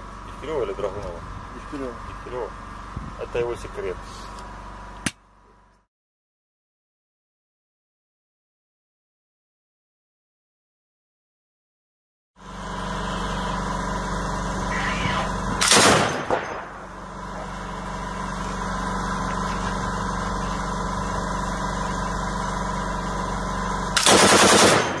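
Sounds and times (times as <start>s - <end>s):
steady low drone: 12.4s - 25.0s
machine gun bursts: 15.6s - 16.7s, 24.0s - 25.0s.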